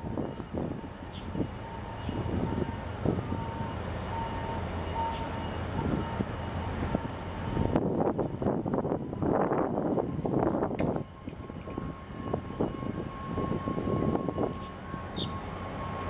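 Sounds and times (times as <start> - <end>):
wind gusting on microphone: 0.0 - 4.2, 5.0 - 16.0
ship low rumble with thin whine: 0.0 - 16.0.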